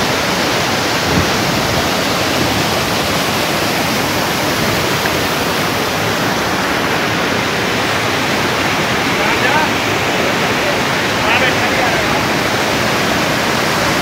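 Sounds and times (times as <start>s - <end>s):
stream rushing over boulders: 0.0s - 14.0s.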